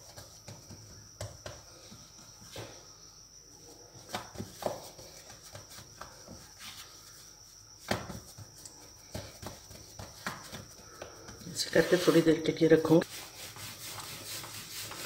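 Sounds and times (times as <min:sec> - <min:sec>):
hands patting dough: 0:00.0 - 0:02.7, 0:03.9 - 0:12.4.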